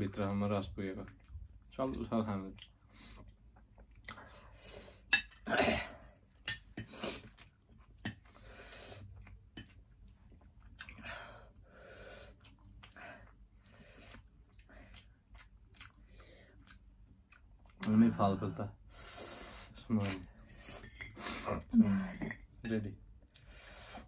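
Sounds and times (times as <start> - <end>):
chewing and slurping: 12.2 - 18.0.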